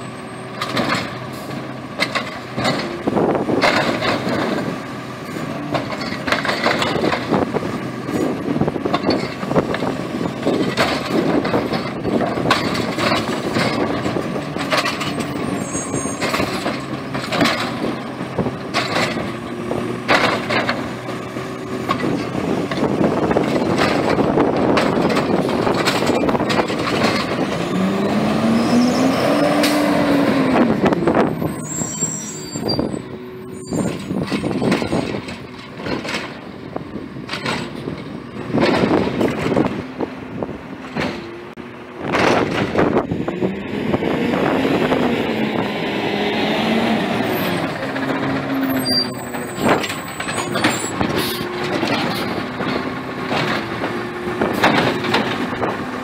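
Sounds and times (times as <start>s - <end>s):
garbage truck engine revving: 0.0s - 56.0s
hydraulic whine: 27.4s - 35.2s
carts clanking: 40.8s - 56.0s.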